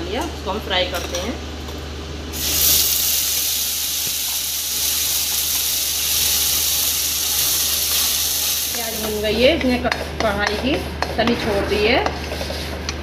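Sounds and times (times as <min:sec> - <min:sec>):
paste sizzling in hot oil: 0:02.3 - 0:09.3.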